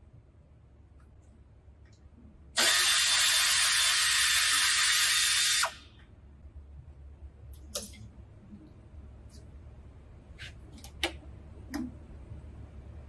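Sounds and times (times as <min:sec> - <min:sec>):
pneumatic air ratchet running: 0:02.6 - 0:05.8.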